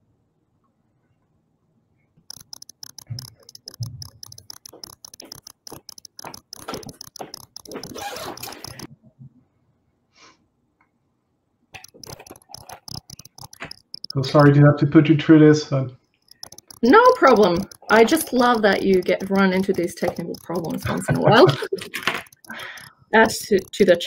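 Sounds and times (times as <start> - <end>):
crackly microphone ticking: 2.3 - 8.9, 11.8 - 14.6, 16.2 - 24.0.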